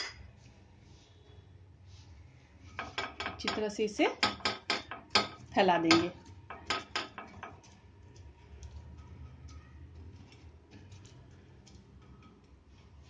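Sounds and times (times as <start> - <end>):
brush tapping on a pan: 2.8 - 12.8.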